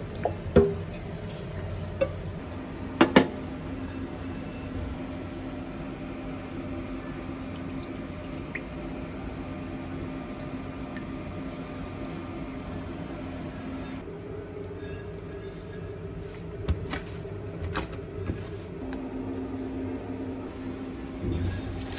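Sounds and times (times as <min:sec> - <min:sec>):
steady low hum: 0:00.0 - 0:21.9
metal pot and lid clanking: 0:21.2 - 0:21.9.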